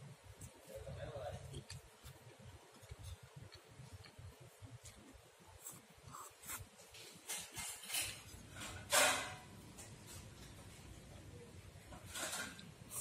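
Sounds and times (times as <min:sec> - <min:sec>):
wet mouth noises: 0:01.4 - 0:06.7
man chewing food: 0:01.4 - 0:07.7.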